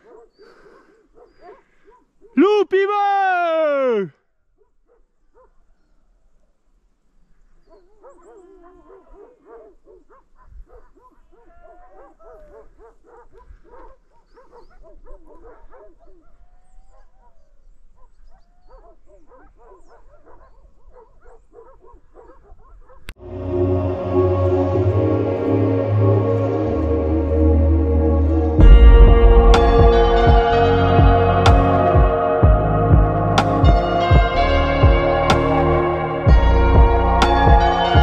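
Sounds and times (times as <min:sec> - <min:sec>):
dogs barking and yelping: 0:00.0 - 0:02.3, 0:07.6 - 0:23.2
loud music: 0:23.2 - 0:38.0.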